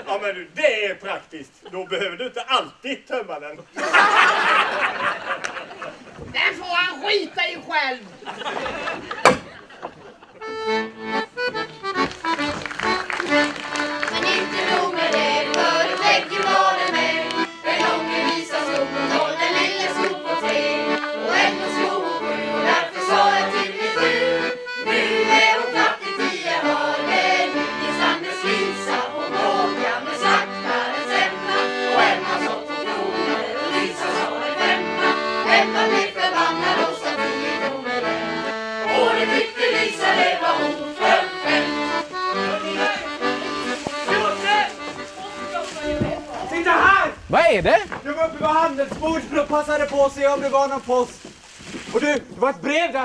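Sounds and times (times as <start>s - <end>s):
fiddles playing folk tune: 6.8s - 51.3s
group of voices singing: 13.6s - 44.9s.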